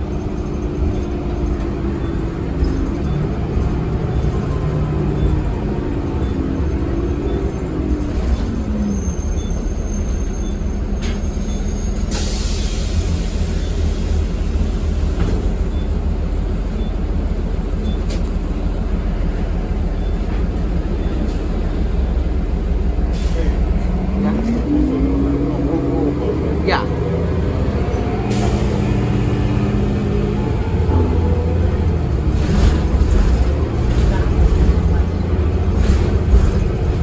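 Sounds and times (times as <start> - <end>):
bus engine and road rumble: 0.0 - 37.0
air brake hissing: 11.9 - 14.1, 23.1 - 23.6, 28.2 - 28.8.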